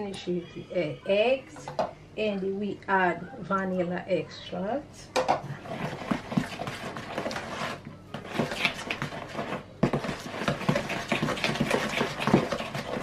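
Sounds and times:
spoon stirring batter in bowl: 0:05.2 - 0:13.0.

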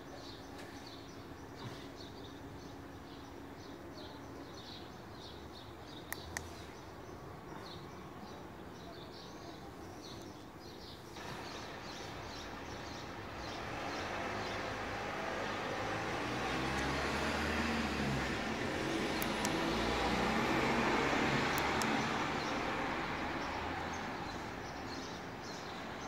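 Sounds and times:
small birds chirping: 0:00.0 - 0:26.0
road traffic rushing: 0:11.2 - 0:26.0
sharp clicks: 0:19.1 - 0:19.7, 0:21.5 - 0:22.0.

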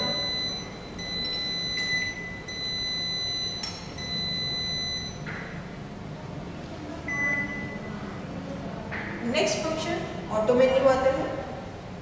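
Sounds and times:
microwave long high beeps: 0:00.0 - 0:05.3, 0:07.1 - 0:08.0
faint low hum: 0:00.0 - 0:12.0.

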